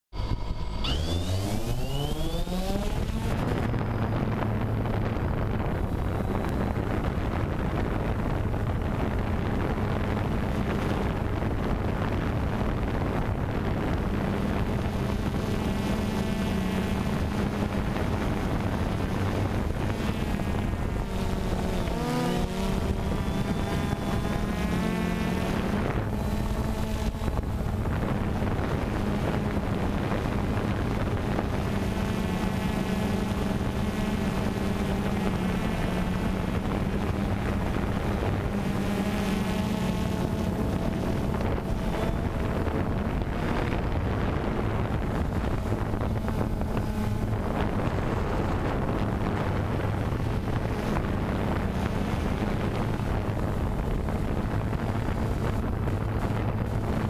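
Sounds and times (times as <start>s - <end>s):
drone motors buzzing: 0.2s - 57.0s
prop wash rushing on microphone: 0.2s - 57.0s.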